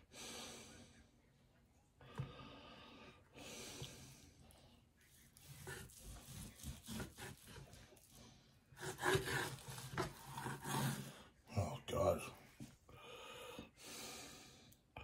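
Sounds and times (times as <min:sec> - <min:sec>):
knife sawing through meat: 0:05.4 - 0:11.3.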